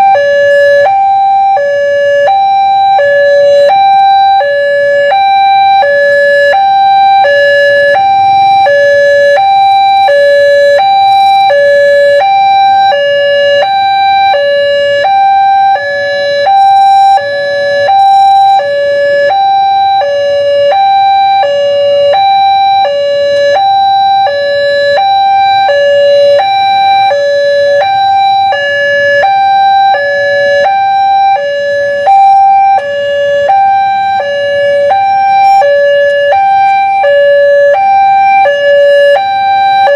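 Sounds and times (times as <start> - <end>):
two-tone crossing warning alarm: 0.0 - 39.9.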